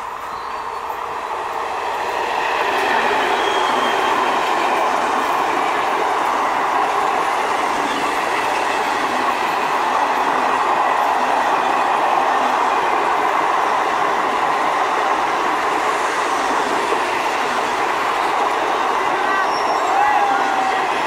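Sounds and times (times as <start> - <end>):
passenger train passing at speed: 0.0 - 21.0.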